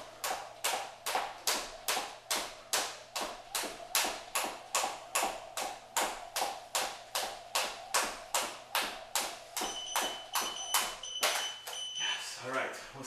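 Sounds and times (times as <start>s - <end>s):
jump rope slapping wooden floor: 0.0s - 11.8s
interval timer beeping: 9.6s - 12.4s.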